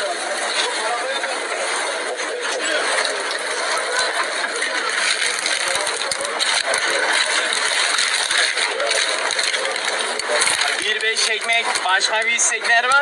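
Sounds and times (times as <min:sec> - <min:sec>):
tongs rattling in foam box: 0:04.8 - 0:13.0.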